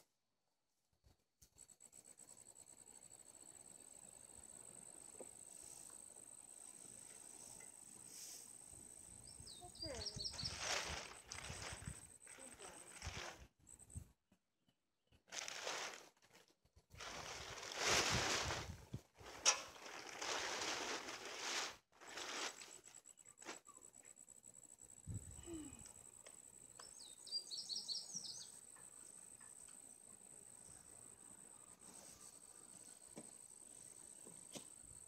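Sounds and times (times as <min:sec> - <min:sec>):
bird chirps: 0:09.2 - 0:11.0, 0:26.7 - 0:29.0
plastic tarp rustling: 0:09.9 - 0:13.5, 0:15.3 - 0:23.6
hay bales scraping: 0:10.0 - 0:13.5, 0:15.3 - 0:16.2, 0:16.9 - 0:23.0.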